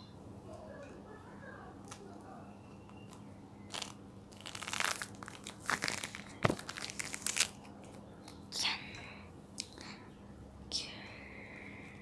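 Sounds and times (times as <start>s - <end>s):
tangerine peel tearing: 3.7s - 8.0s.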